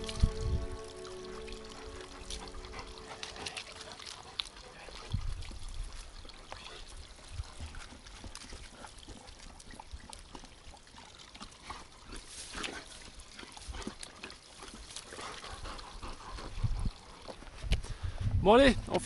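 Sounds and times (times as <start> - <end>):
wind rumble on microphone: 0.0 - 1.0, 5.0 - 6.2, 16.2 - 19.0
dogs lapping water: 0.0 - 18.0
spring water trickling: 0.0 - 18.1.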